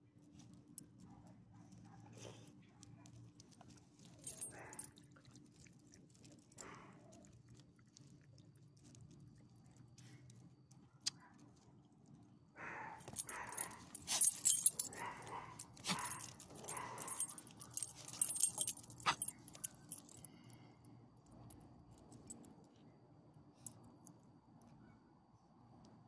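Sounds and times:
dog collar tags jingling: 0:04.1 - 0:04.9, 0:13.0 - 0:20.3
harness and leash rustling: 0:13.0 - 0:20.2.

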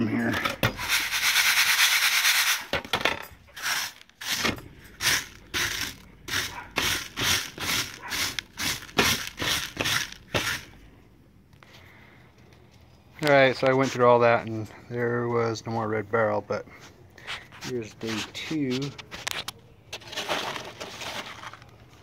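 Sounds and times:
gravel rattling in sifting pan: 0:05.0 - 0:10.6.

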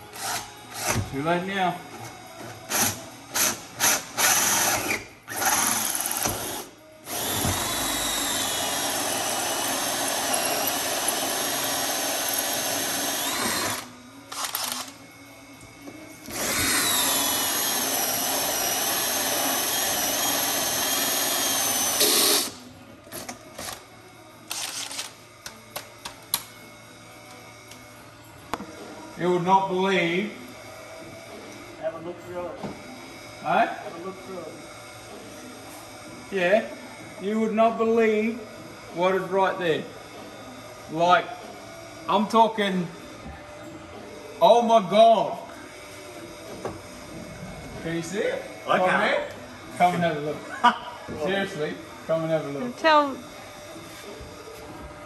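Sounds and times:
cordless drill whining: 0:02.7 - 0:15.0, 0:16.2 - 0:22.7
drill clicks: 0:09.5 - 0:15.0.

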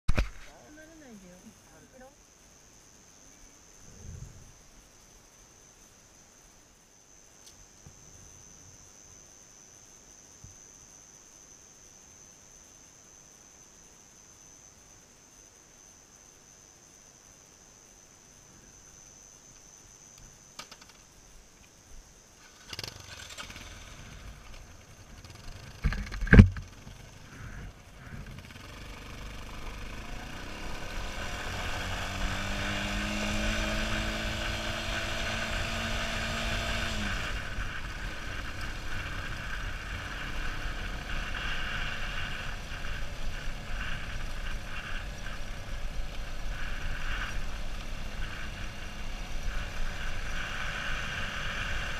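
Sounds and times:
motorcycles riding on gravel: 0:22.4 - 0:51.9.

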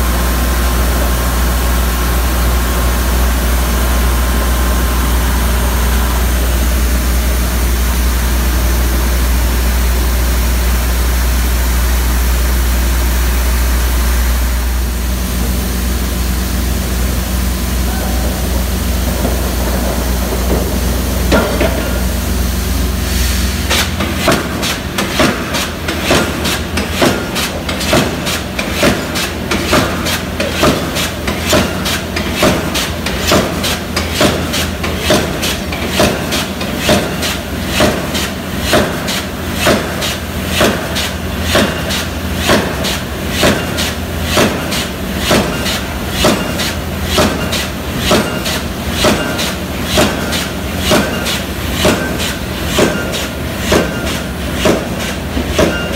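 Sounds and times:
low engine drone: 0:00.0 - 0:25.9
pile hammer blows: 0:17.8 - 0:22.2, 0:23.7 - 0:55.9.

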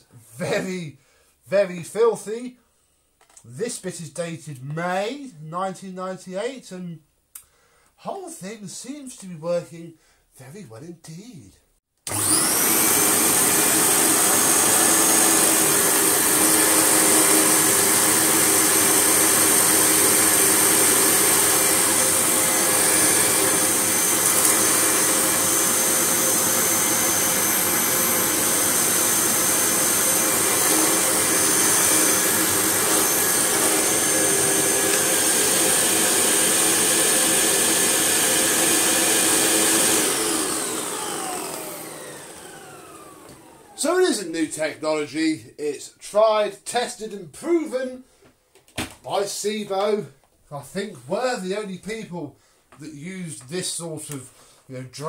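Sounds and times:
upright vacuum cleaner running: 0:12.1 - 0:44.2
vacuum motor winding down: 0:12.1 - 0:44.2.

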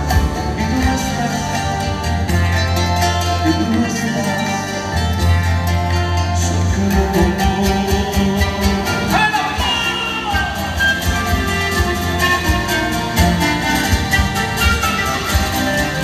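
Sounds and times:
bass: 0:00.0 - 0:16.0
drums: 0:00.0 - 0:16.0
strummed charangos: 0:00.0 - 0:16.0
panpipes: 0:09.1 - 0:16.0.

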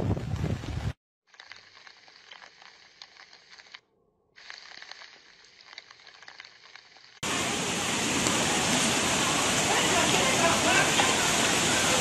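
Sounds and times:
faint crackling hiss of floodwater: 0:07.2 - 0:12.0
fast-flowing floodwater rushing: 0:07.2 - 0:12.0.

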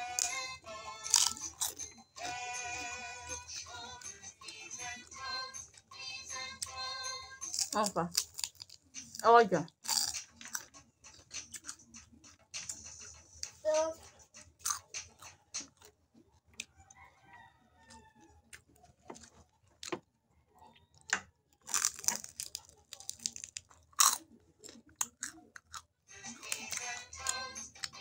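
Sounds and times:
crispy food crunching: 0:01.0 - 0:02.9, 0:07.5 - 0:12.0, 0:20.9 - 0:28.0.

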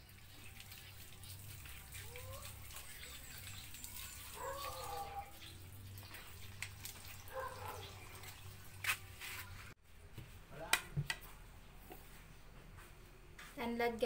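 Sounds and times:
water dripping and splashing: 0:00.0 - 0:09.6.

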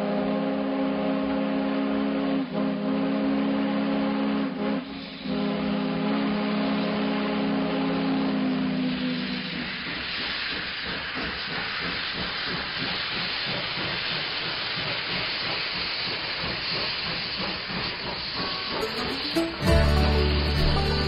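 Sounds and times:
loud hiss of steam venting: 0:00.0 - 0:21.0
steam locomotive passing: 0:00.0 - 0:21.0.

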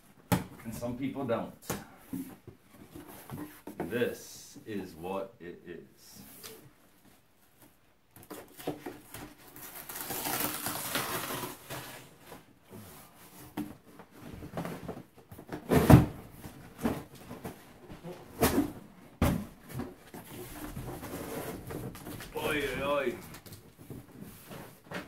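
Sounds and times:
cardboard rustling and scraping: 0:19.5 - 0:25.0.

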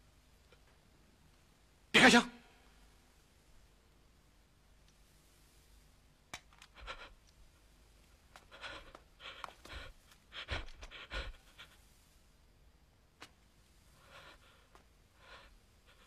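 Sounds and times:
person breathing hard: 0:06.6 - 0:07.3, 0:08.3 - 0:12.2, 0:13.9 - 0:16.0.

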